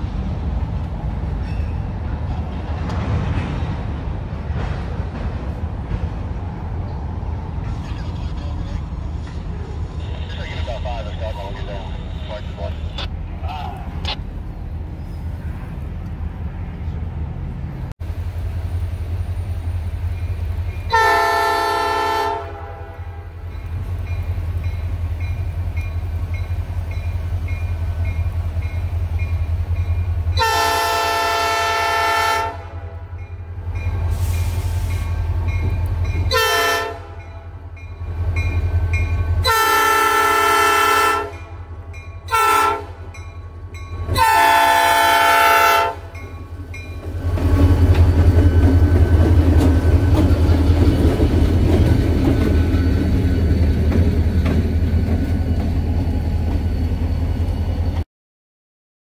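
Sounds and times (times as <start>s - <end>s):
locomotive engine rumble: 0.0s - 58.0s
locomotive air horn blasts: 20.9s - 23.3s, 30.4s - 33.1s, 36.3s - 37.3s, 39.4s - 41.5s, 42.3s - 43.0s, 44.1s - 46.1s.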